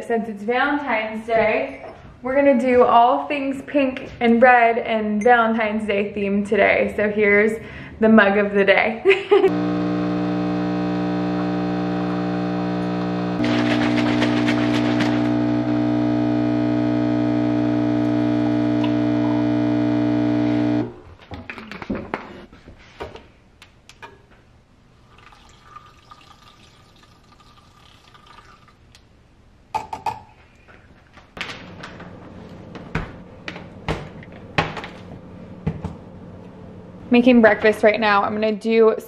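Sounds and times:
coffee machine buzzing hum: 9.5s - 20.9s
milk frother whirring: 9.5s - 20.9s.

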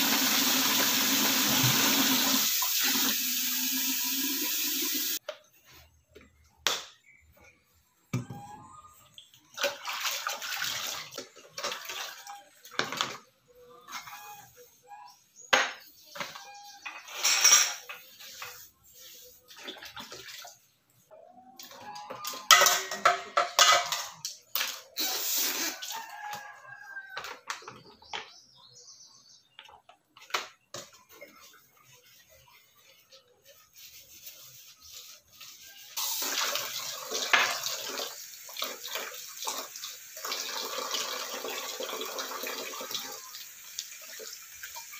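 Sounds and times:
water splashing in sink: 0.0s - 5.2s, 9.1s - 13.0s, 19.4s - 20.6s, 36.0s - 44.9s
rooster crowing: 25.7s - 27.3s.

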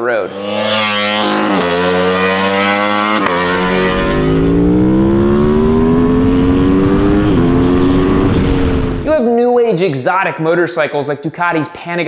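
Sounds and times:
motorcycle engine accelerating: 0.0s - 9.3s.

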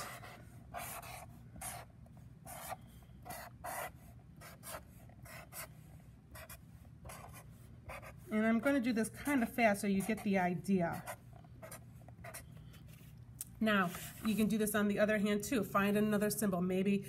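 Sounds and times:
marker drawing on paper: 0.0s - 13.1s.

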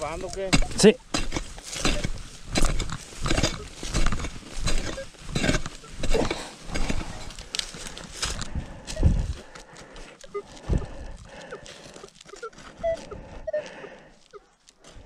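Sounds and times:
digging tool chopping into soil: 0.2s - 7.1s.

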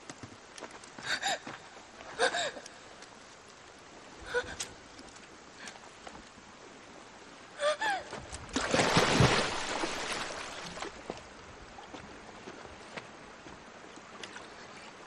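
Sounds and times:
large splash into river: 8.6s - 10.9s.

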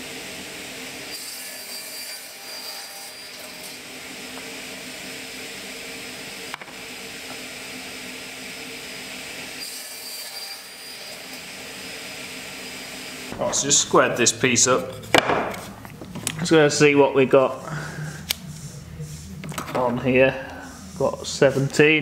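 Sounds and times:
saw blade cutting timber: 1.1s - 5.3s, 9.5s - 12.0s.

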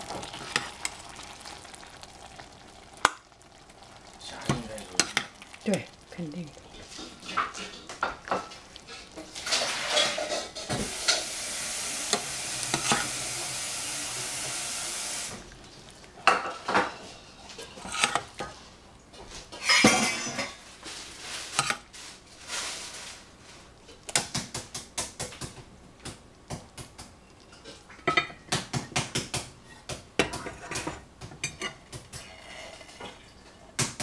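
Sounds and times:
steady hiss: 0.0s - 17.6s
metal ladle scraping saucepan: 6.8s - 11.4s, 12.0s - 13.3s, 16.9s - 18.6s.

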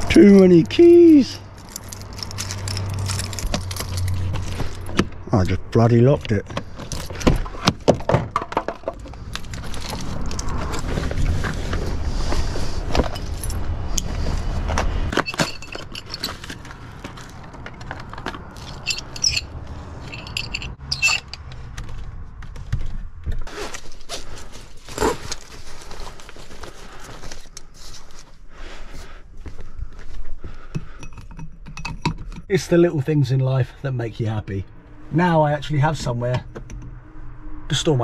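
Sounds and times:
keys jangling: 1.6s - 4.9s, 13.1s - 14.1s, 18.6s - 21.4s
low rumble: 34.6s - 38.0s.

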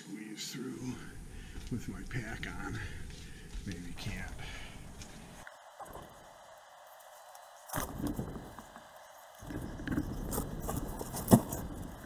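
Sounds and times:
backpack scraping against rock: 9.4s - 12.0s.

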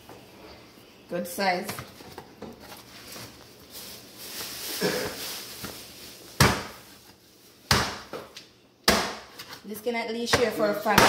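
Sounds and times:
gloved hands rustling: 1.8s - 7.6s.

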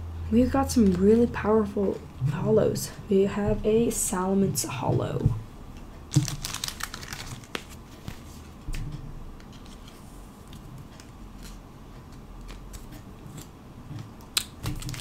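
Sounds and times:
card in plastic sleeve rustling: 6.1s - 8.4s.

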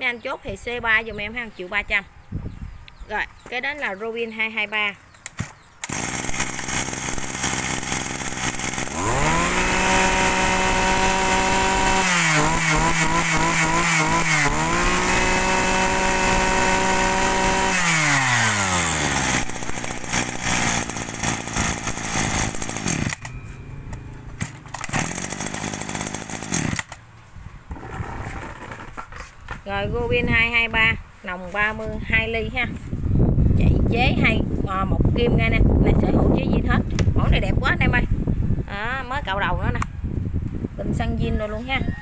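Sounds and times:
brush cutter engine revving: 5.2s - 27.0s.

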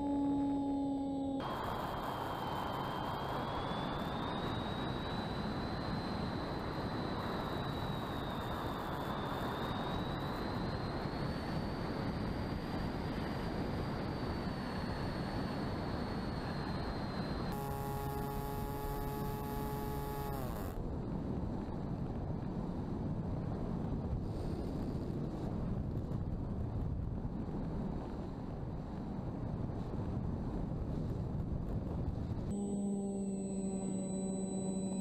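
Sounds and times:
electric motor propeller whine: 0.0s - 20.8s, 32.5s - 35.0s
low multi-tone motor hum: 0.0s - 35.0s.

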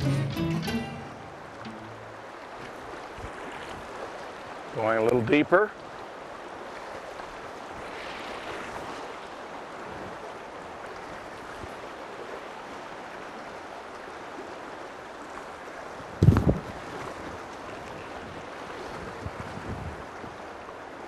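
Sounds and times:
river rushing over riffles: 0.0s - 21.0s.

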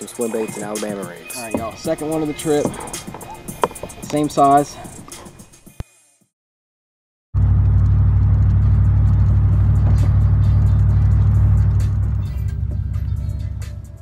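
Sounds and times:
car road rumble from inside: 7.4s - 14.0s.

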